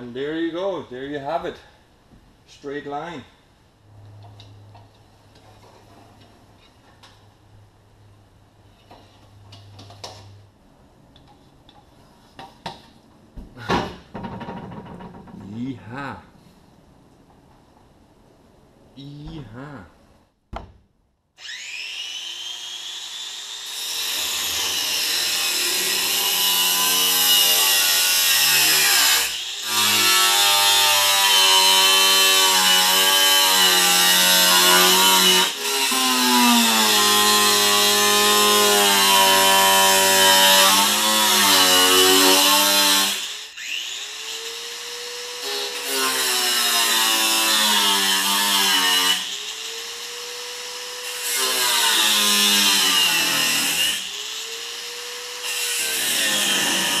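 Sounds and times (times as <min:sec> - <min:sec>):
power cut-off tool whining: 0:21.4 - 0:33.3, 0:41.4 - 0:47.2, 0:49.1 - 0:57.0.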